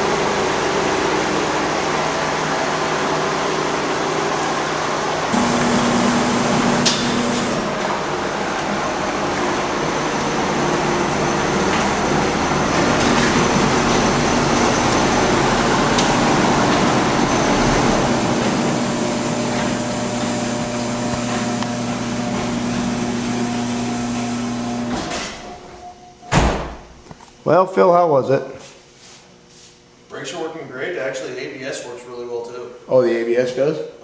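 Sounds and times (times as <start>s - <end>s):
car engine idling: 4.8s - 24.9s
garage door closing: 5.2s - 27.0s.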